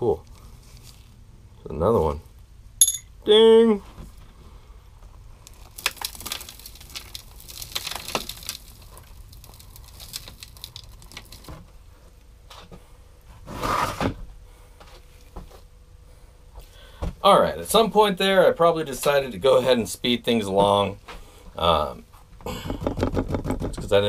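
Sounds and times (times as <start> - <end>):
gravel rattling in a shaken screen: 5.5 - 11.7.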